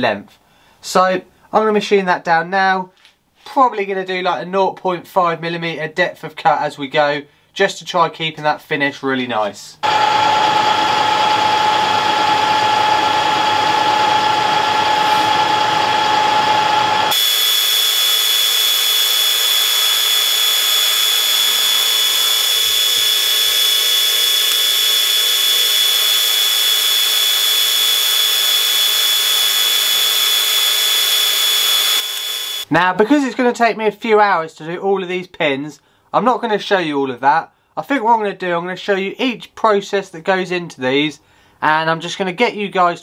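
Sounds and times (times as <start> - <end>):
metal lathe whine and cutting: 9.8 - 32.7.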